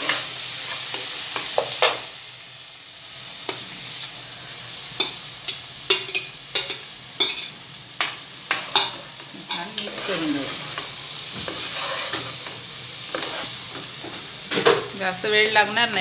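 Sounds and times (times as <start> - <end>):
masala sizzling: 0.0 - 16.0
spatula scraping steel plate: 11.4 - 12.4, 13.1 - 13.6.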